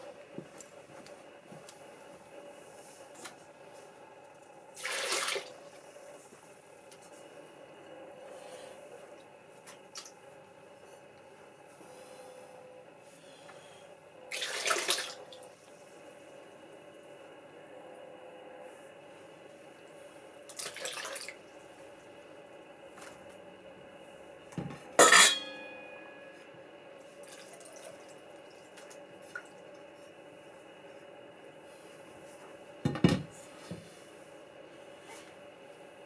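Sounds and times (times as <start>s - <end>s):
bowls being set down: 24.6s - 25.7s
glass clinking: 25.0s - 26.4s.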